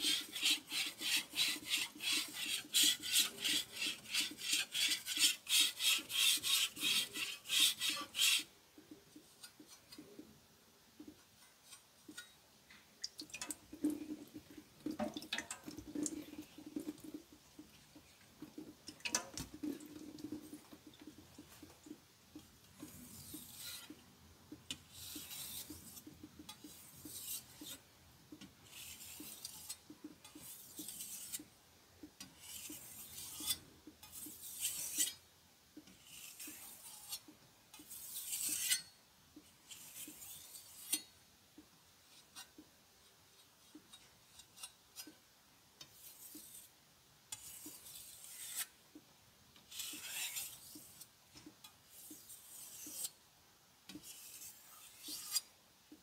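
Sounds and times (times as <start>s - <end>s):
knife scraping on whetstone: 0.0s - 8.5s, 22.8s - 24.0s, 24.7s - 27.8s, 28.6s - 31.5s, 32.3s - 35.2s, 35.9s - 39.0s, 39.6s - 41.1s, 45.8s - 46.7s, 47.3s - 48.8s, 49.7s - 53.2s, 53.9s - 55.5s.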